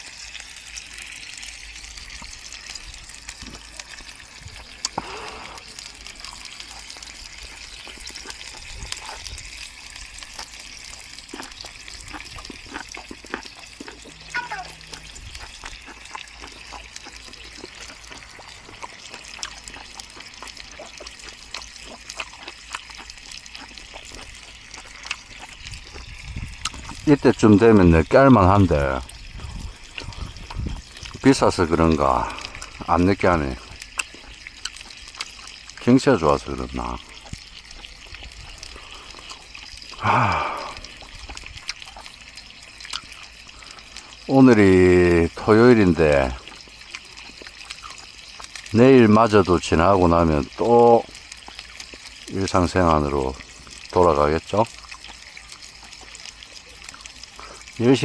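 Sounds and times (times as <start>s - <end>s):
faint steady hiss: 0.0s - 58.0s
food sizzling on grill: 0.0s - 58.0s
fat popping and spitting: 2.0s - 27.2s, 29.0s - 31.4s, 32.1s - 35.9s, 36.6s - 44.1s, 46.4s - 48.7s, 54.8s - 57.7s
man humming or sighing: 40.0s - 40.8s.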